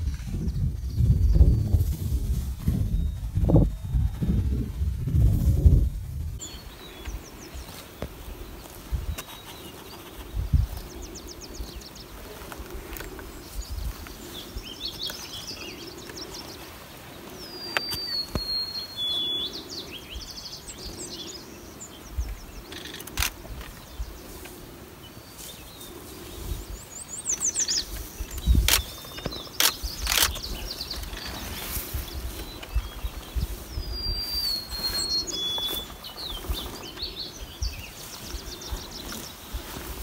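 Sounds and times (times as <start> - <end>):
small birds chirping: 0.0 - 40.0
sharp clicks: 22.7 - 23.9, 28.3 - 31.3.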